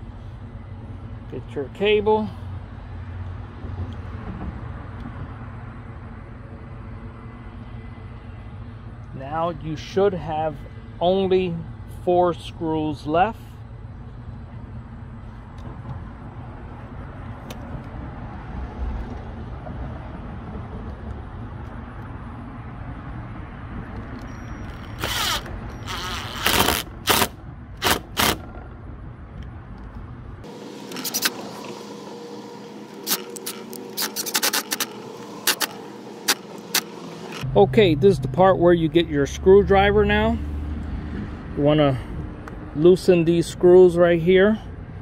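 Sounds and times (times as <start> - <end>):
drill driving screws: 24.8 - 28.5, 33.0 - 37.4
low steady rumble: 27.4 - 45.0
sharp clicks: 33.0 - 37.4.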